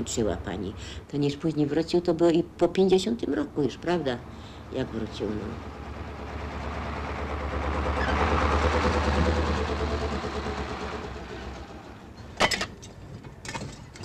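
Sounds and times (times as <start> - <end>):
engine noise passing: 3.2 - 12.4.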